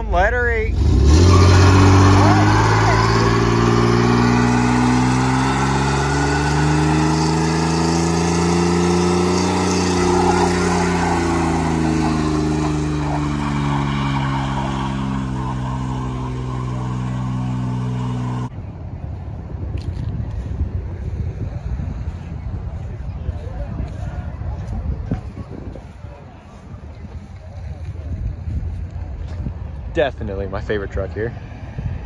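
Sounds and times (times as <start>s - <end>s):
engine at high revs: 0.7s - 18.5s
spinning tyre hissing on pavement: 0.8s - 18.5s
wind on microphone: 18.5s - 29.9s, 31.4s - 32.0s.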